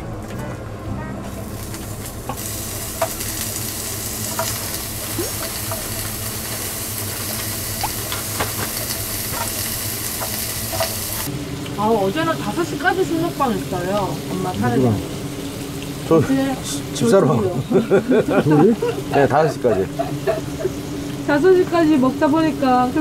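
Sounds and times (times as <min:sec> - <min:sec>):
meat sizzling on grill plate: 0:01.3 - 0:23.0.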